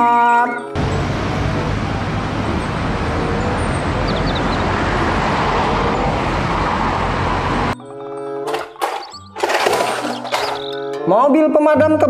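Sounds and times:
road noise: 0:00.7 - 0:11.1
bus engine hum: 0:00.8 - 0:07.8.

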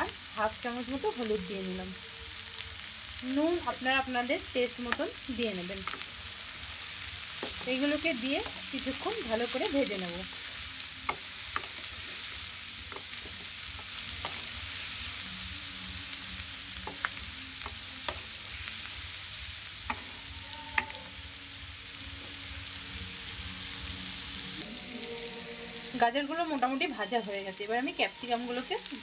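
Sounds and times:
vegetables sizzling in hot oil: 0:00.0 - 0:29.0
spatula scraping and tapping pan: 0:05.8 - 0:06.1, 0:07.3 - 0:08.8, 0:10.3 - 0:14.6, 0:16.8 - 0:18.3.

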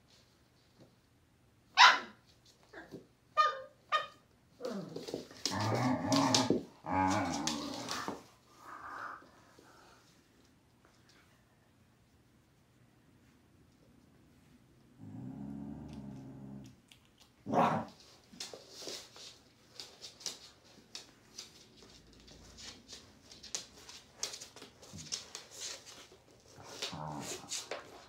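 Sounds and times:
dog barking: 0:01.8 - 0:02.2
dog growling: 0:04.6 - 0:08.2, 0:15.0 - 0:16.8
dogs grumbling softly: 0:04.6 - 0:10.0, 0:14.9 - 0:16.9, 0:26.5 - 0:28.0.

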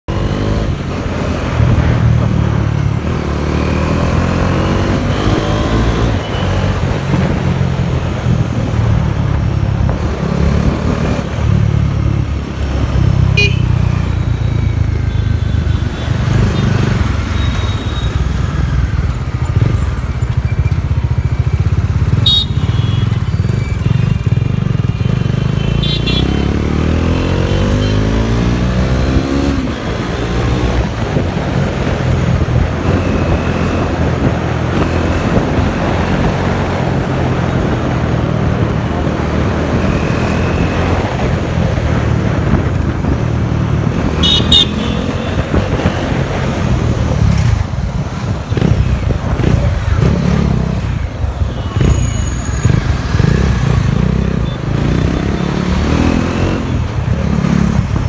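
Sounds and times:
motorcycle engine accelerating: 0:51.8 - 0:58.0.

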